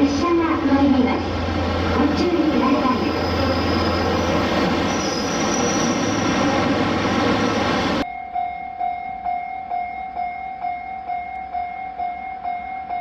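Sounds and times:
train wheel and rail noise: 0.0 - 8.1.

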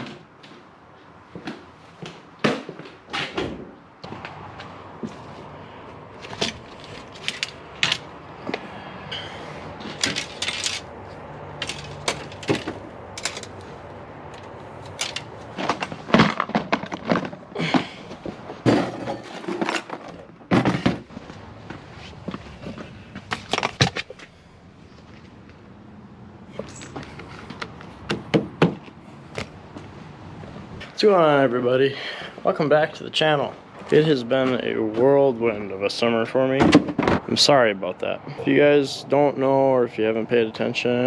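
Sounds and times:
objects being handled and set down: 6.2 - 24.3.

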